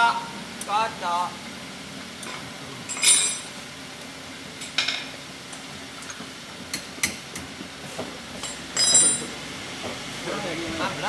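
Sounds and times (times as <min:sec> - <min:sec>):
metal clicks and clinks: 0:02.2 - 0:03.5, 0:08.4 - 0:09.3.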